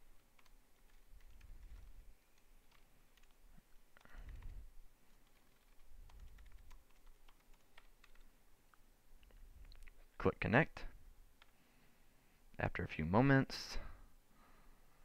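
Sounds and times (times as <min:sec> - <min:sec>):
computer keyboard typing: 0:00.0 - 0:03.4, 0:04.0 - 0:08.3.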